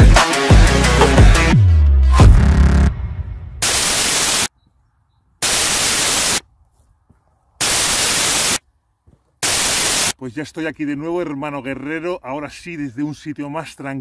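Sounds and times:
deep bass note: 0:00.6 - 0:03.6
loud static hiss bursts: 0:03.6 - 0:04.5, 0:05.4 - 0:06.4, 0:07.6 - 0:08.6, 0:09.4 - 0:10.2.

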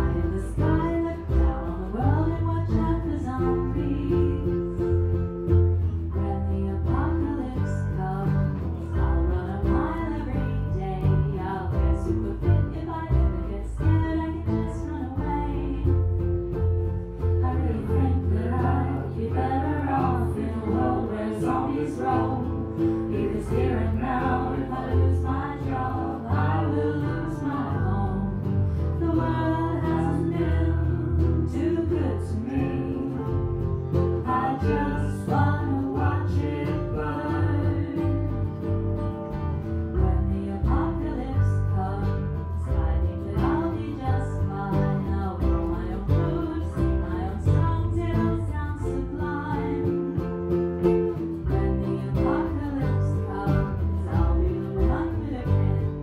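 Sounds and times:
acoustic pop-folk band playing: 0:00.0 - 0:56.0
person singing: 0:17.4 - 0:38.7, 0:51.4 - 0:56.0.

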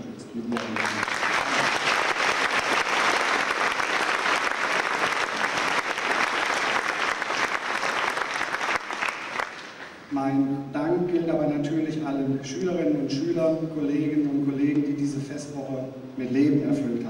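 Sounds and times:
large audience applauding: 0:00.5 - 0:10.1.

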